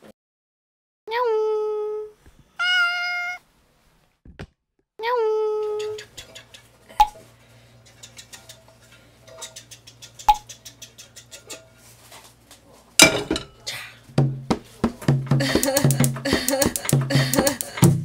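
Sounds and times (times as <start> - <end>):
low steady hum: 12.9 - 14.5
kitchenware clicks and taps: 13.0 - 13.6, 15.6 - 17.8.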